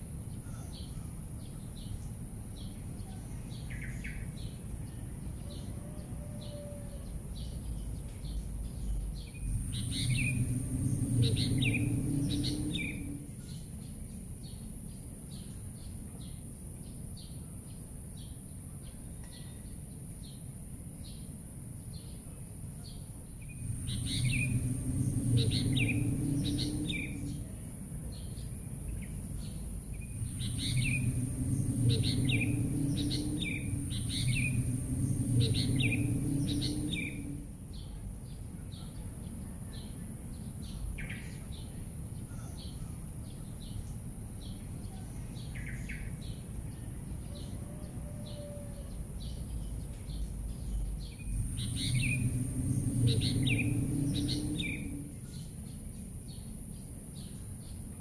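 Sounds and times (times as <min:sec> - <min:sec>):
low background rumble: 0:00.0 - 0:58.0
birds chirping: 0:06.4 - 0:14.7, 0:22.9 - 0:47.6, 0:48.3 - 0:57.9
steady high hiss: 0:08.4 - 0:15.8, 0:22.2 - 0:38.6, 0:49.4 - 0:58.0.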